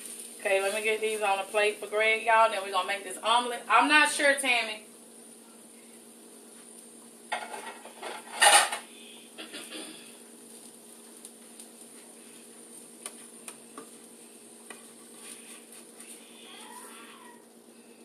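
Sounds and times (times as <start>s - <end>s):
steady hum: 0.0s - 18.0s
plates and utensils clattering: 7.3s - 8.8s.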